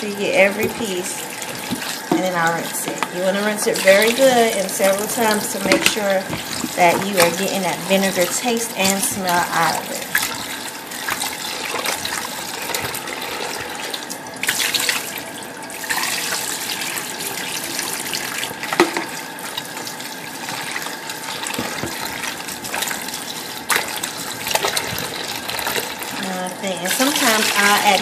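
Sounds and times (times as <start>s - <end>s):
water splashing: 0.0s - 28.0s
tap running into bowl: 0.5s - 3.2s, 4.9s - 7.5s, 18.6s - 19.7s, 21.4s - 23.1s.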